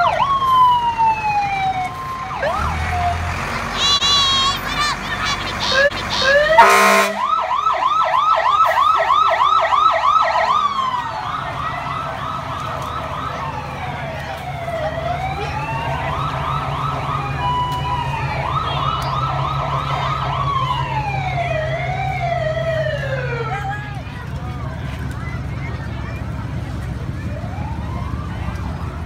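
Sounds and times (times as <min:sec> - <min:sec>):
second siren: 0:00.0 - 0:03.3, 0:05.8 - 0:23.5, 0:27.1 - 0:29.0
low engine rumble: 0:00.0 - 0:29.0
electronic siren yelping and wailing: 0:05.7 - 0:23.4
loud horn blast: 0:06.5 - 0:07.3.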